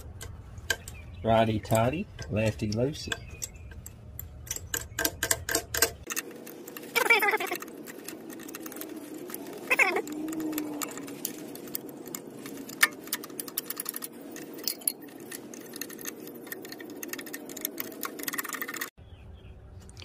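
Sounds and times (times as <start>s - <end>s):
wrench clicking on small nuts: 0.0s - 19.0s.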